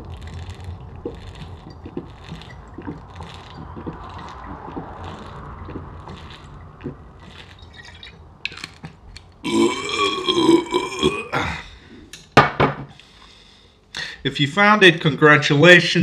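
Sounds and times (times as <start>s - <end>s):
man gulping from a bottle: 0.0s - 11.9s
long loud burp: 9.4s - 11.8s.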